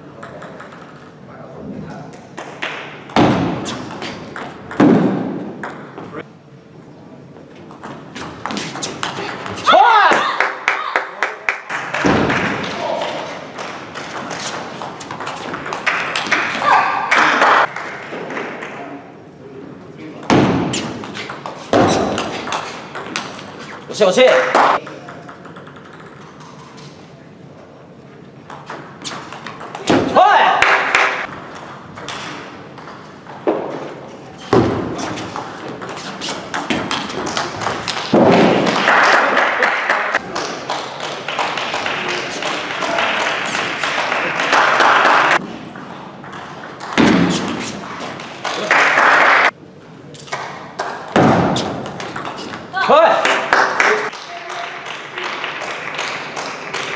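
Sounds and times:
table tennis balls pinging: 0.0s - 1.3s, 2.3s - 6.2s, 7.5s - 10.3s, 12.0s - 18.8s, 20.1s - 26.9s, 28.4s - 39.1s, 40.2s - 49.5s, 50.2s - 52.9s
table tennis ball clicking: 24.8s - 26.3s.

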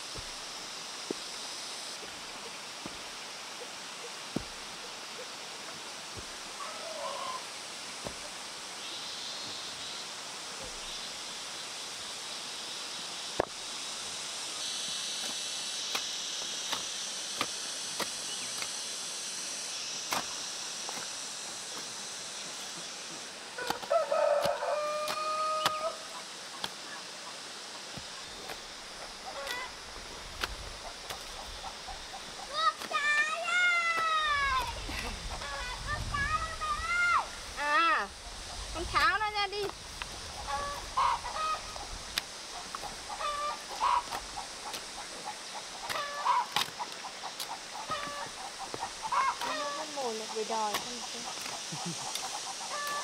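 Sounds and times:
hoes striking soil: 0.1s - 2.2s, 2.8s - 3.1s, 4.3s - 4.8s, 6.1s - 6.5s, 8.0s - 8.4s, 13.3s - 13.6s, 15.0s - 18.9s, 20.0s - 22.8s, 23.6s - 25.9s, 26.5s - 26.8s, 27.9s - 34.9s, 38.9s - 49.8s, 50.6s - 53.0s
hoe chopping into soil: 15.2s - 18.8s, 20.0s - 21.1s, 23.6s - 25.9s, 45.8s - 46.8s
rooster crowing: 23.6s - 26.1s
chickens clucking: 29.2s - 29.8s, 40.3s - 53.0s.

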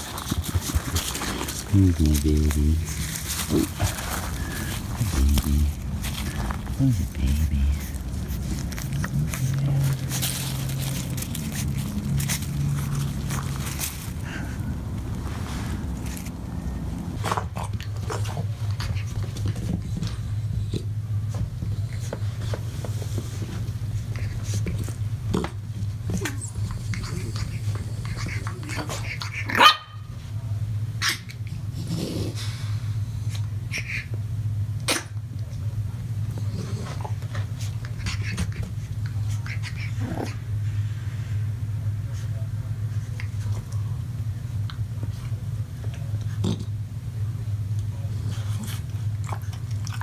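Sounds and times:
dogs scuffling clicks: 0.0s - 14.3s
low hum: 0.0s - 25.2s
dogs snuffling: 0.0s - 29.5s.

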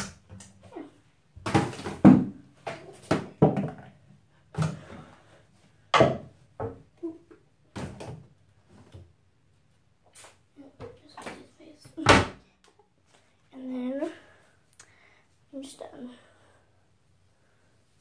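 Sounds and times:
hard objects knocking and clattering: 3.0s - 3.9s.

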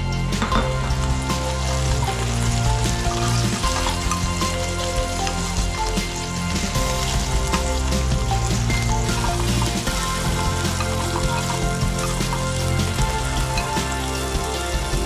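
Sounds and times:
background music: 0.0s - 15.0s
meat sizzling in oil: 0.1s - 15.0s.

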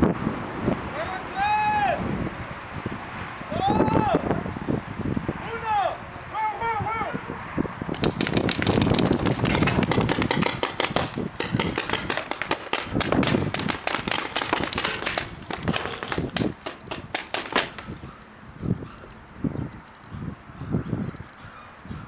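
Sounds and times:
paintball markers firing: 8.0s - 17.9s.

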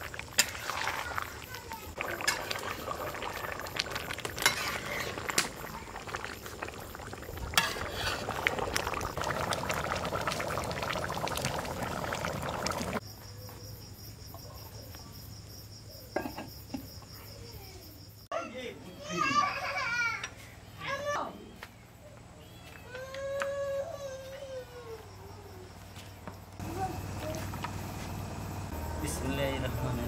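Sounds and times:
curry bubbling in a pot: 0.0s - 13.0s.

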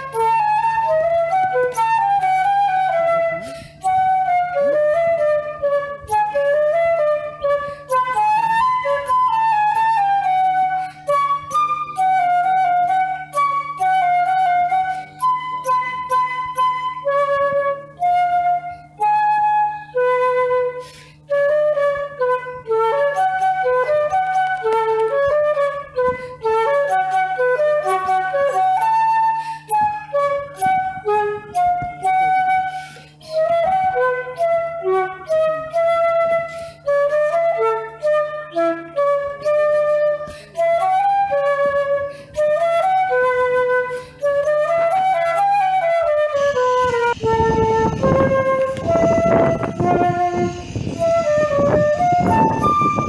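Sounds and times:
flute melody: 0.0s - 53.0s
low drone: 43.6s - 53.0s.

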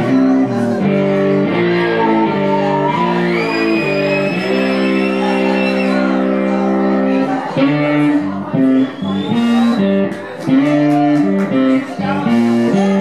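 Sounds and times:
electric guitar through amplifier: 0.0s - 13.0s.

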